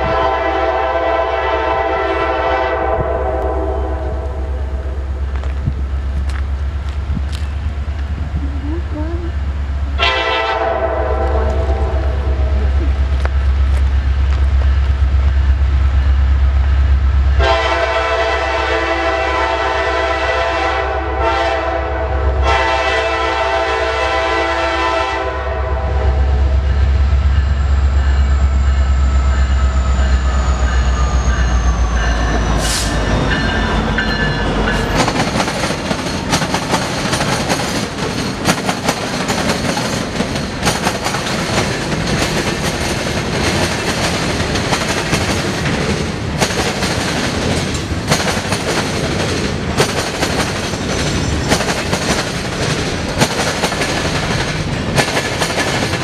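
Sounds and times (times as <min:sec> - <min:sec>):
train horn blasts: 0:00.0 - 0:04.6, 0:10.0 - 0:12.8, 0:17.4 - 0:26.7
diesel locomotive engine rumble: 0:00.0 - 0:56.0
freight cars rattling over rails: 0:27.4 - 0:56.0.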